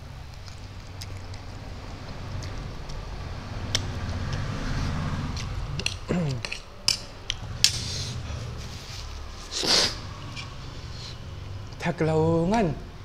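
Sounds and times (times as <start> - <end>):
falling vocal hum: 5.5 - 6.6.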